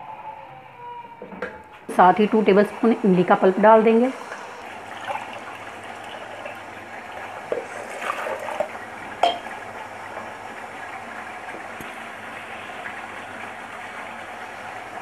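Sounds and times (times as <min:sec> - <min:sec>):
thick stew bubbling in a pot: 0:04.7 - 0:15.0.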